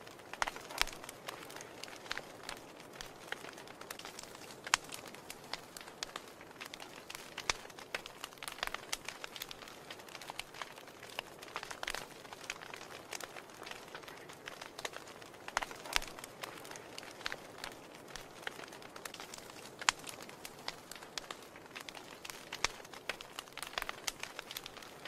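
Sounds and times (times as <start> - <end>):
wood fire crackling and popping: 0.0 - 25.0.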